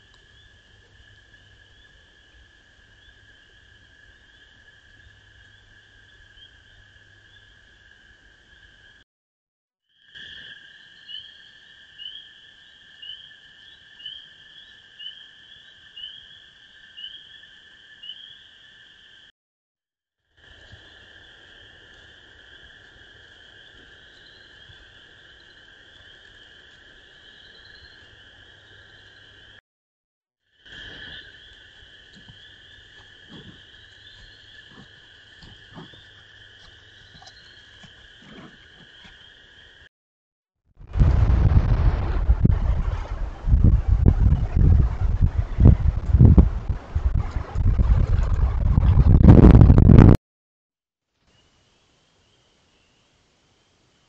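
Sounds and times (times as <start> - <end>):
frog chorus: 0.0 - 9.0, 9.9 - 19.3, 20.4 - 29.6, 30.5 - 39.9.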